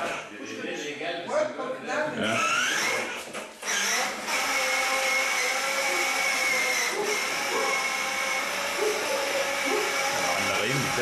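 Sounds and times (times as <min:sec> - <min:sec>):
toy electronic engine buzzing: 0:02.3 - 0:11.0.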